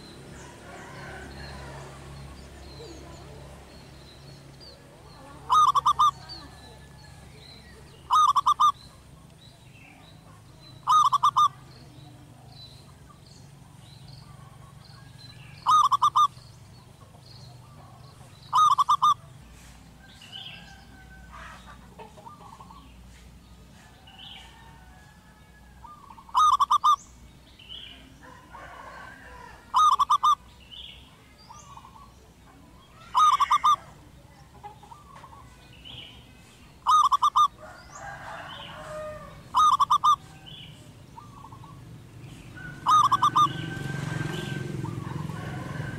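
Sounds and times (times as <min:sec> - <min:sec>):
dove trilled cooing: 0:05.0 - 0:09.2, 0:10.2 - 0:12.7, 0:15.4 - 0:16.4, 0:17.6 - 0:19.3, 0:25.8 - 0:27.1, 0:28.2 - 0:30.5, 0:32.8 - 0:35.5, 0:36.8 - 0:45.9
faint bird chirps: 0:05.0 - 0:23.1, 0:25.8 - 0:45.2.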